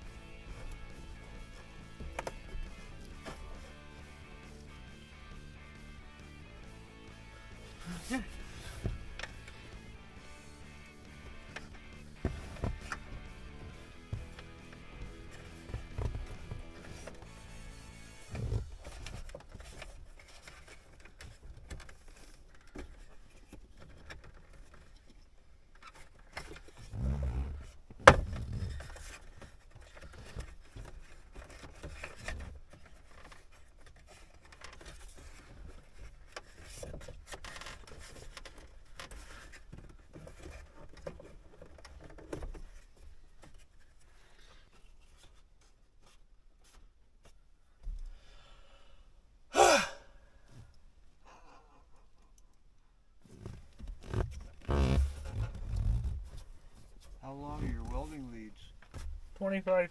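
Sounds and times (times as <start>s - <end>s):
hands rustling and scraping wiring: 0.0s - 48.2s, 50.4s - 59.9s.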